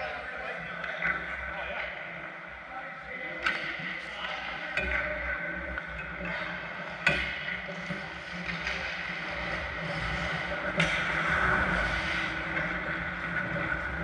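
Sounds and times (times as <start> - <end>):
hockey stick or puck clacks: 3.4 - 11.2
skates scraping ice: 7.6 - 14.0.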